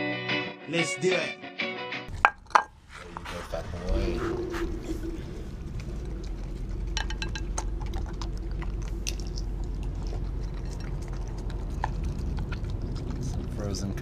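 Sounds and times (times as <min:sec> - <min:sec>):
steady low hum: 0:02.1 - 0:14.0
dog chewing raw meat: 0:05.2 - 0:14.0.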